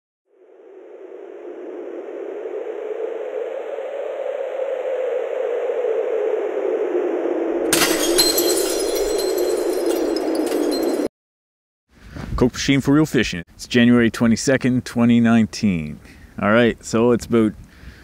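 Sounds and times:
glass shattering: 7.7s - 11.1s.

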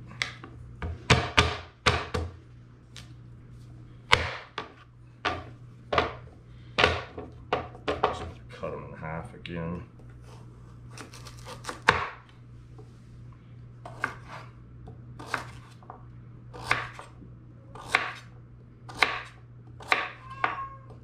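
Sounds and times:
low steady hum: 0.0s - 21.0s
knife cutting on wooden board: 13.9s - 14.5s, 15.2s - 15.8s.

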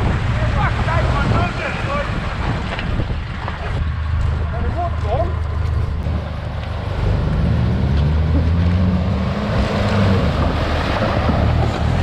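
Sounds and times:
vehicle engine under load: 0.0s - 12.0s
water splashing: 8.4s - 12.0s.

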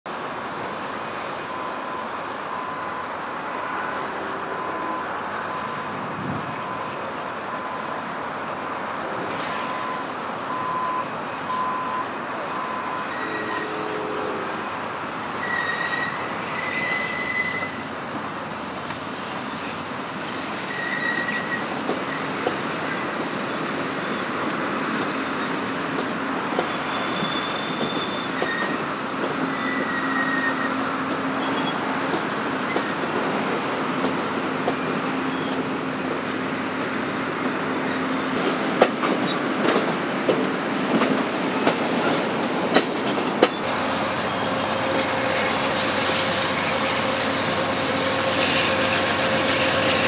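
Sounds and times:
train wheels rumbling on rail: 0.1s - 50.0s
high wheel squeals: 9.5s - 14.7s, 15.4s - 17.8s, 19.5s - 23.1s, 26.6s - 31.9s, 40.5s - 41.3s.

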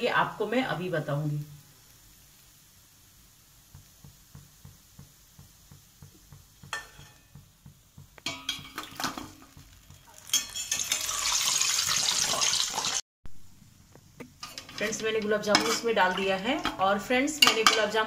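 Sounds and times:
loud hissing sizzle in syrup: 0.0s - 8.2s, 9.6s - 13.0s
steel ladle clinking on metal pot: 6.7s - 7.3s, 8.2s - 9.4s, 10.1s - 11.3s.

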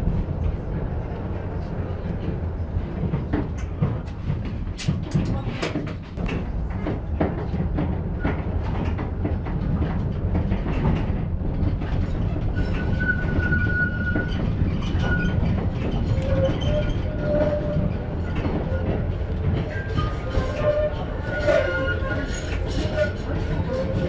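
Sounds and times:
tram rumbling on track: 0.0s - 24.0s
high squeal of tram wheels: 12.0s - 24.0s.

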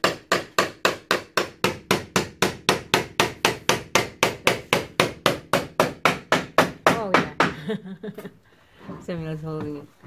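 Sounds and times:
hammer striking wood: 0.0s - 7.6s.

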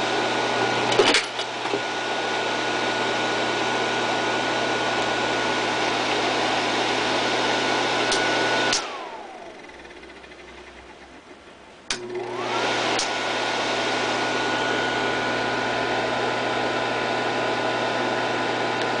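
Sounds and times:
projector fan whirring: 0.0s - 19.0s
projector switch click: 11.9s - 12.1s.

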